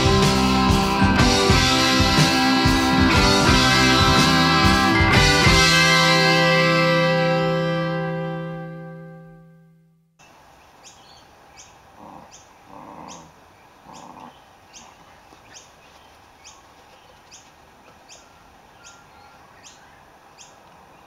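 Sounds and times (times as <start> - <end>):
puppy growling: 12.0 - 15.0.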